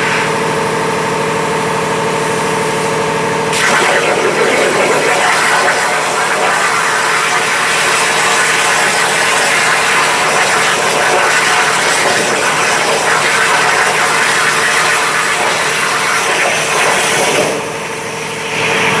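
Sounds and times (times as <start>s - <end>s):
plasma cutter hissing: 3.5s - 18.6s.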